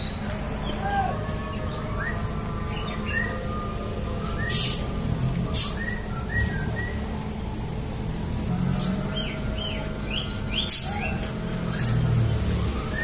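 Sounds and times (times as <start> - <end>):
birds chirping: 0.0 - 13.0
diesel engine idling: 0.0 - 13.0
short air hisses: 5.6 - 5.8.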